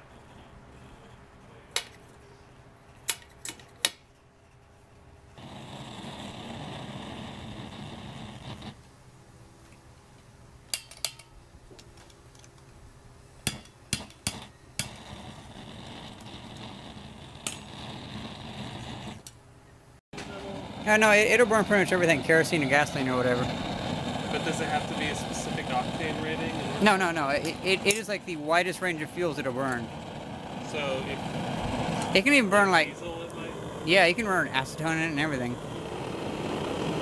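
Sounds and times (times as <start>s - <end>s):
blowtorch flame hissing: 5.4s - 8.8s, 14.0s - 19.2s, 20.2s - 37.0s.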